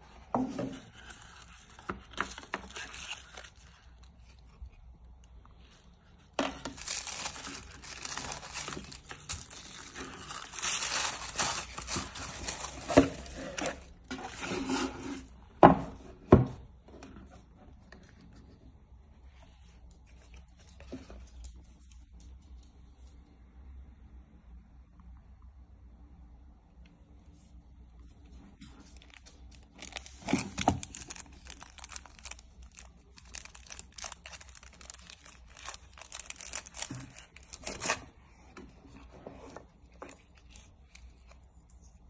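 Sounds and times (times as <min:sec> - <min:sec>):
tissue paper crinkling: 0:00.9 - 0:04.8, 0:06.6 - 0:14.4, 0:28.6 - 0:39.1
cardboard sliding and scraping: 0:12.6 - 0:15.4.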